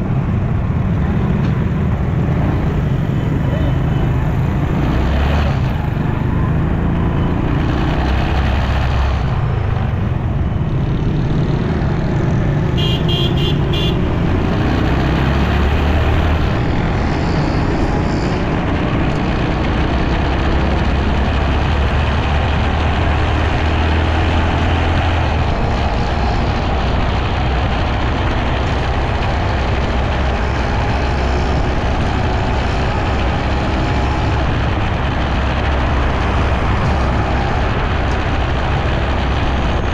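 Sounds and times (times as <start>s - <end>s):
motorcycle engine running: 0.0s - 39.9s
traffic: 0.0s - 39.9s
wind and road noise: 0.0s - 39.9s
vehicle horn beeps: 12.8s - 14.0s.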